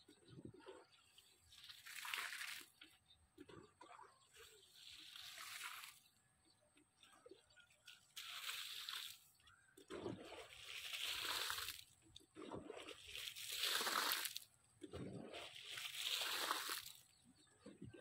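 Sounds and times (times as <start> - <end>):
water splashing onto soil: 1.5 - 6.1, 7.9 - 17.1.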